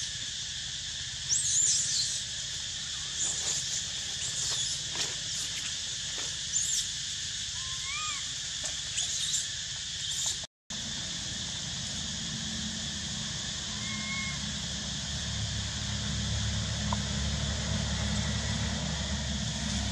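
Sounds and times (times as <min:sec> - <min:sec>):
steady high hiss: 0:00.0 - 0:19.9.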